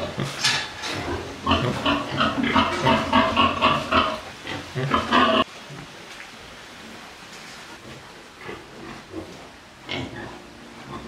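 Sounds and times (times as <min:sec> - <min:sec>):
pigs grunting: 0:00.0 - 0:05.5.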